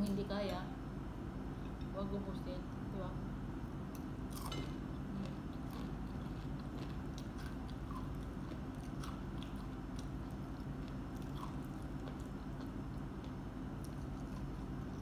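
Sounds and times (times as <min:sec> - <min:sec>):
steady low hum: 0:00.0 - 0:15.0
person chewing fried chicken: 0:03.9 - 0:15.0.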